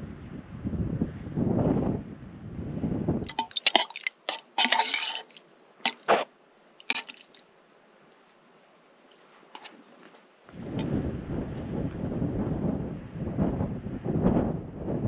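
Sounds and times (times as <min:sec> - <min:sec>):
wind buffeting microphone: 0:00.0 - 0:03.4, 0:10.5 - 0:15.0
sharp clicks and crinkles: 0:03.3 - 0:07.4, 0:09.6 - 0:10.2.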